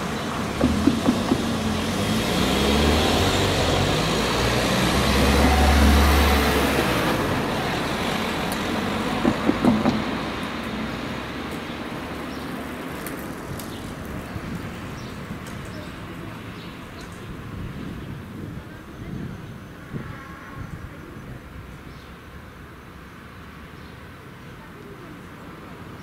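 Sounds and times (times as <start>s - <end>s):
vehicle passing with deep rumble: 0.0s - 18.4s
car tyres knocking over rails: 0.3s - 2.9s, 9.2s - 10.4s.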